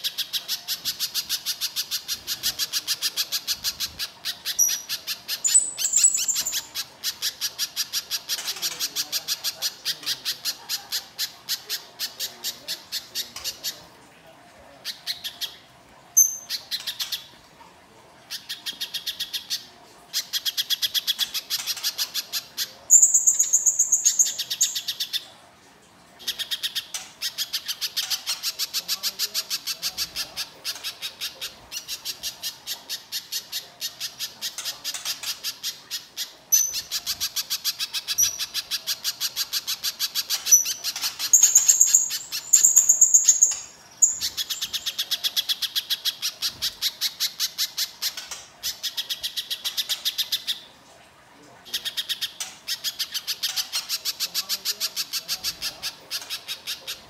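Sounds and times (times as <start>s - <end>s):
bird harsh chatter: 0.0s - 13.8s, 26.3s - 50.7s.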